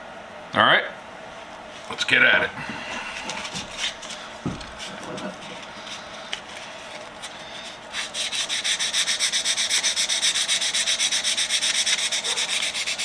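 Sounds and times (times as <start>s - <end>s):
sandpaper rubbing on wood: 7.6s - 13.0s.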